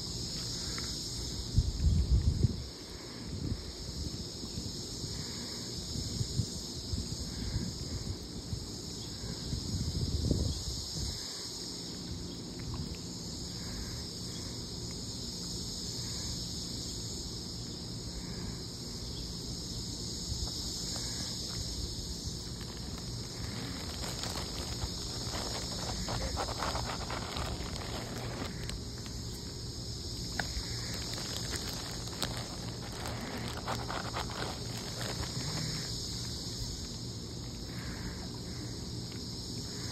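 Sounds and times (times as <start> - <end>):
high insect drone: 0.0 - 39.9
rustling: 22.3 - 29.4, 30.3 - 35.9.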